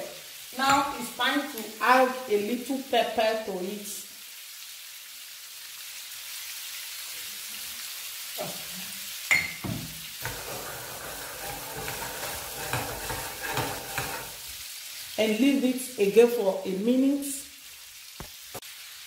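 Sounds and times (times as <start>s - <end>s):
prawns sizzling in oil: 0.0s - 19.0s
pan shaken on burner: 10.2s - 14.4s.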